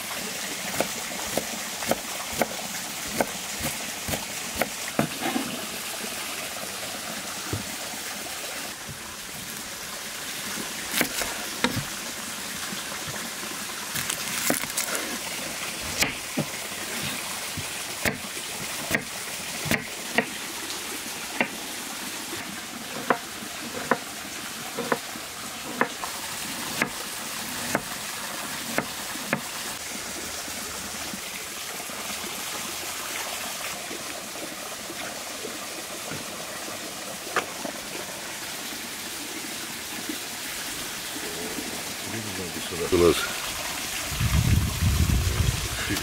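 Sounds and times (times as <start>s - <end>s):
knife chopping on wooden board: 3.1s - 5.6s, 10.9s - 12.0s, 15.9s - 17.2s, 18.0s - 20.4s, 21.4s - 21.6s, 22.9s - 24.1s, 24.8s - 25.1s, 25.7s - 26.0s, 26.8s - 27.0s, 27.6s - 27.9s, 28.7s - 29.5s.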